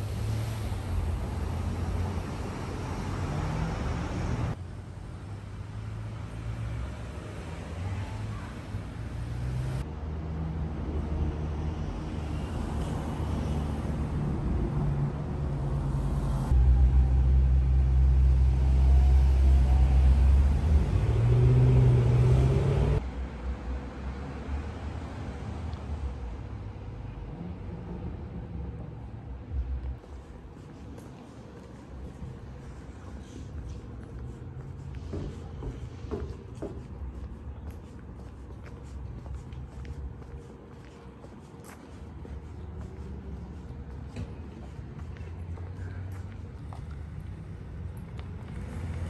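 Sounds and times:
road traffic rumble: 0:00.0 - 0:49.0.

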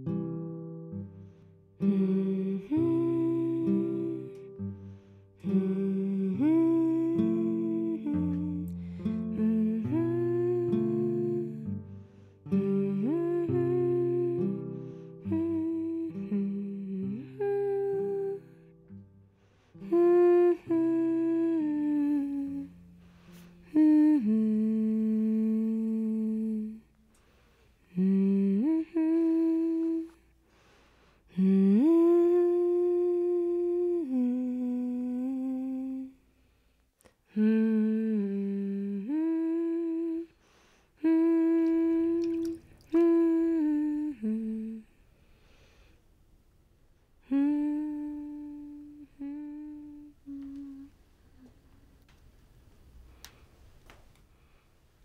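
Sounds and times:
woman humming: 0:01.8 - 0:04.7, 0:05.4 - 0:11.8, 0:12.5 - 0:18.7, 0:19.8 - 0:26.9, 0:27.9 - 0:30.2, 0:31.3 - 0:36.2, 0:37.3 - 0:40.4, 0:41.0 - 0:45.0, 0:47.2 - 0:51.6.

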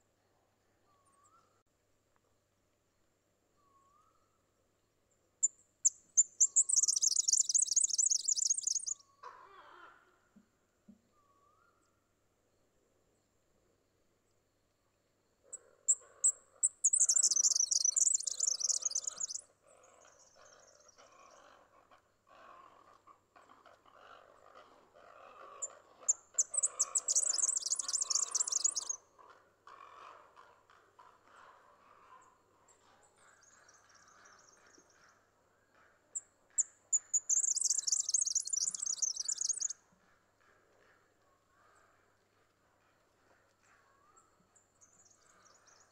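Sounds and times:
bird singing high rapid reels: 0:06.4 - 0:09.0, 0:16.9 - 0:19.4, 0:26.4 - 0:29.0, 0:37.1 - 0:39.7.

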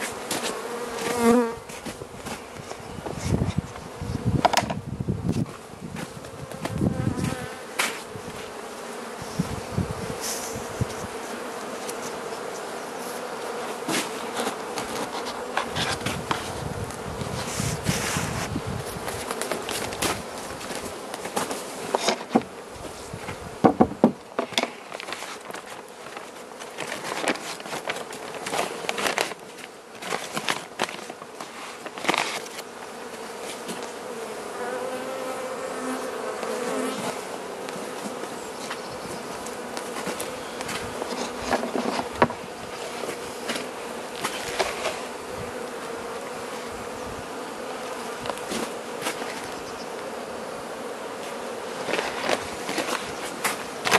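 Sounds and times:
bees buzzing: 0:00.0 - 0:53.9
knocks of wooden hive parts: 0:04.4 - 0:08.5, 0:19.0 - 0:22.6, 0:23.2 - 0:34.0, 0:39.4 - 0:45.1, 0:51.2 - 0:53.9.

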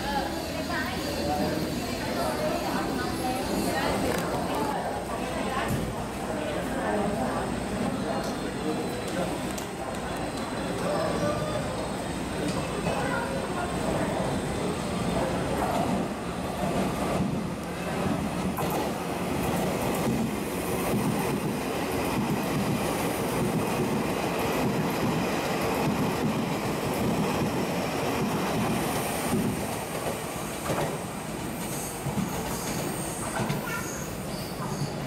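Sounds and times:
train wheels clattering on rails: 0:15.7 - 0:34.0.

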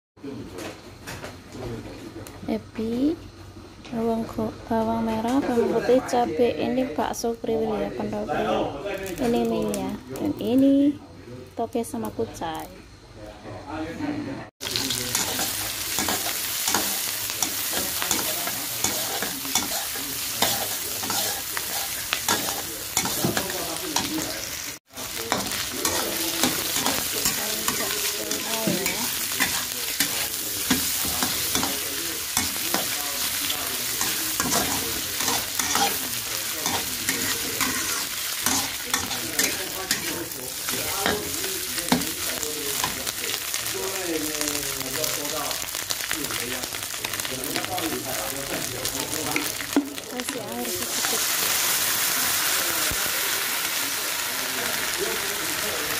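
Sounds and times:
food sizzling in hot oil: 0:07.0 - 0:10.8, 0:14.6 - 0:55.9
spatula scraping a wok: 0:14.7 - 0:43.0.

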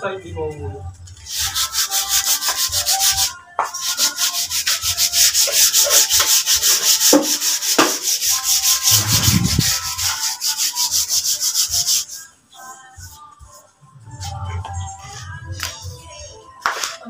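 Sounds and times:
hand sanding wood: 0:01.3 - 0:12.3.

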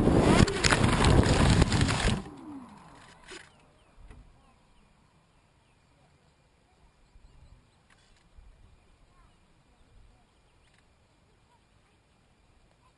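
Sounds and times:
rushing wind: 0:00.0 - 0:03.2.

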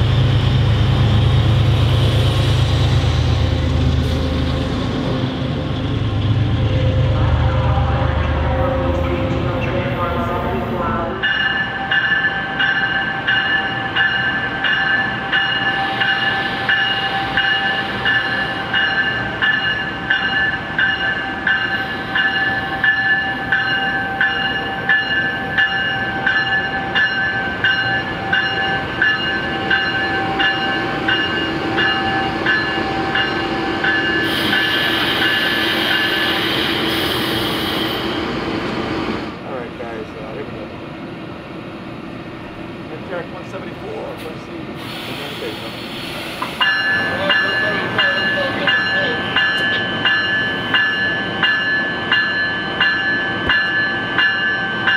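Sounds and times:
locomotive bell ringing: 0:06.5 - 0:36.6, 0:46.6 - 0:54.9
air hissing: 0:44.8 - 0:46.7.

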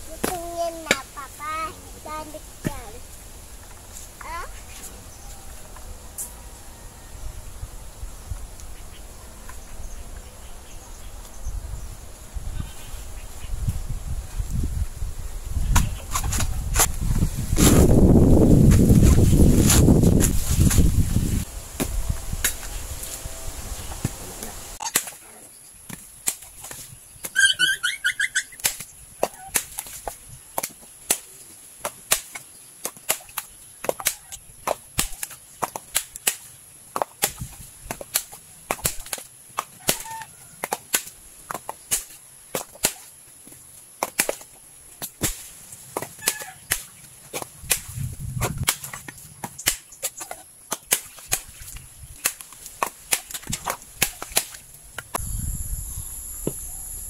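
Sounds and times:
blade cracking coconuts: 0:24.8 - 0:25.3, 0:25.9 - 0:27.4, 0:28.5 - 0:55.2.

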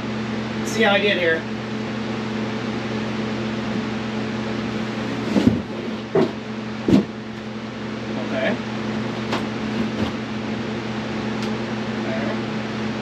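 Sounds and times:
steady hum: 0:00.0 - 0:13.0
dull knocks on wooden frame: 0:05.3 - 0:07.2.

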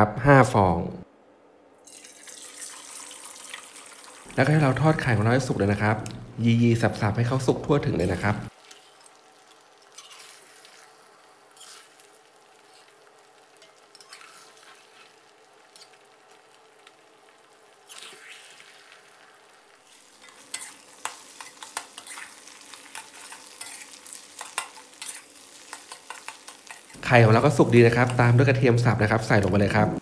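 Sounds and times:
eggs sizzling in oil: 0:01.8 - 0:30.0
metal spatula scraping pan: 0:20.1 - 0:27.0.

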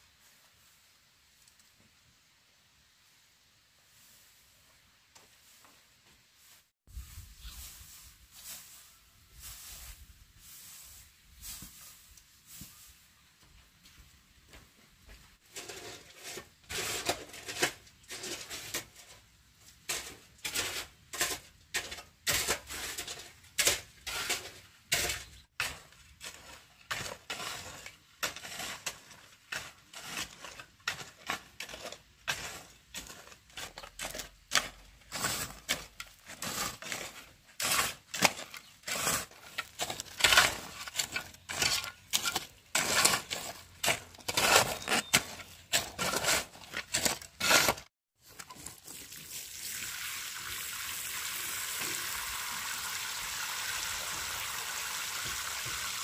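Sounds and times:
shovels scraping gravel mix: 0:15.4 - 0:49.4.

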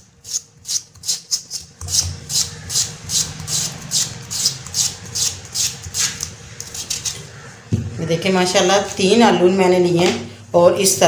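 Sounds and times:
potato scraping across slicer blade: 0:00.0 - 0:07.4.

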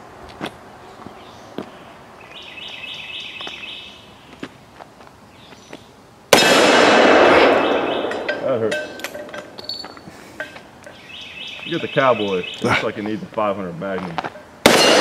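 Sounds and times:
bird chirping: 0:00.8 - 0:04.4, 0:07.4 - 0:13.4
revolver gunshot: 0:06.4 - 0:08.7, 0:14.7 - 0:15.0.

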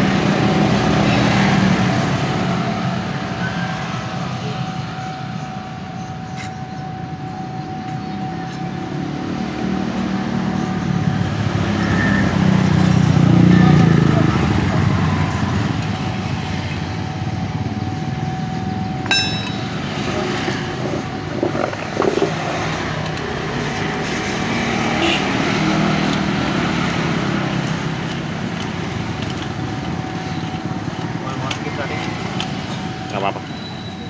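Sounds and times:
motor vehicles rumbling: 0:00.0 - 0:34.0
metal pipe clink: 0:19.0 - 0:20.2.

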